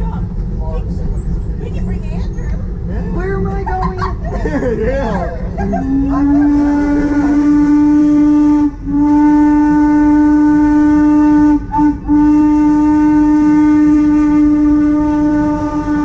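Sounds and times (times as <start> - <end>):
steam locomotive whistle: 5.8 - 16.0.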